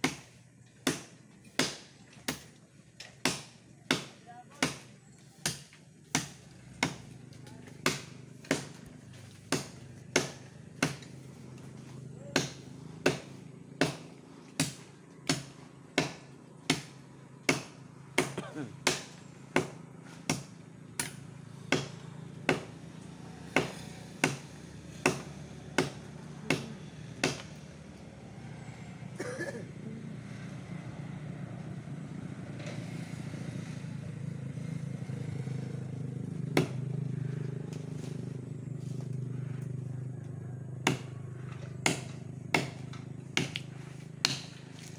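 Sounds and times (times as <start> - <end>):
machete chopping a branch: 0.0 - 22.8, 23.4 - 27.6, 36.5 - 39.2, 40.8 - 44.9
vehicle engine humming: 0.0 - 44.9.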